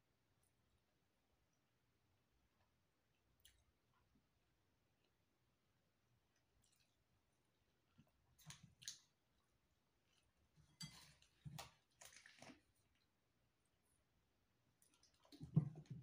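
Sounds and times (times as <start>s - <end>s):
chewing noodles: 6.3s - 13.2s.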